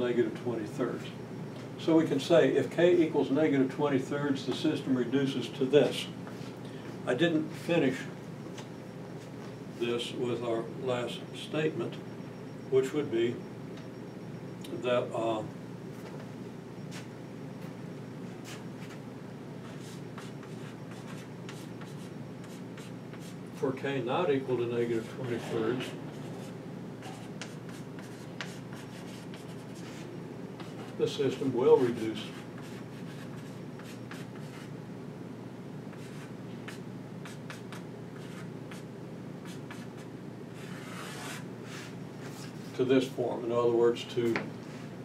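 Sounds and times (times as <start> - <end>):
low background hum: 0.0 - 45.0
chalk scratching on blackboard: 19.6 - 23.4, 25.4 - 31.0, 32.3 - 34.7, 36.0 - 38.8, 39.4 - 42.0.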